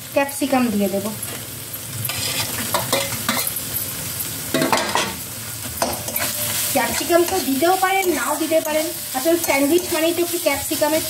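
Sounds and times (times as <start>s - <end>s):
frying sizzle: 0.0s - 11.0s
metal spatula scraping pan: 2.1s - 3.6s, 5.8s - 10.0s.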